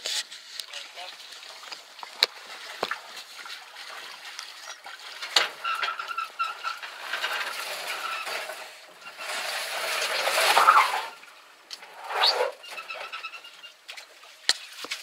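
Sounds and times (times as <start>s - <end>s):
box scraping on metal boat: 5.4s - 13.5s
squeaks: 5.5s - 13.8s.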